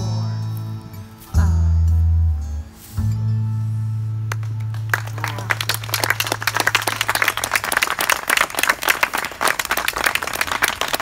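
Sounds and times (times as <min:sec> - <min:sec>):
audience applause: 0:04.3 - 0:11.0.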